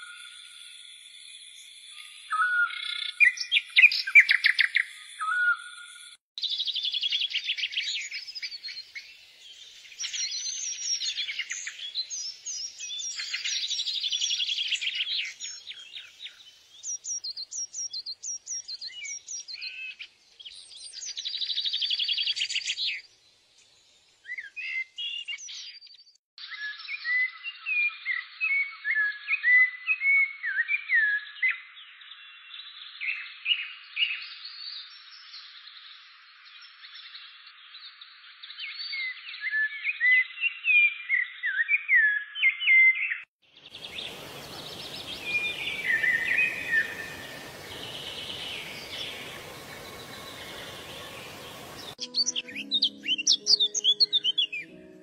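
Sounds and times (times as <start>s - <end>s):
whistled bird notes: 0.0s - 23.1s, 38.5s - 55.0s
songbirds trilling and chirping: 30.5s - 55.0s.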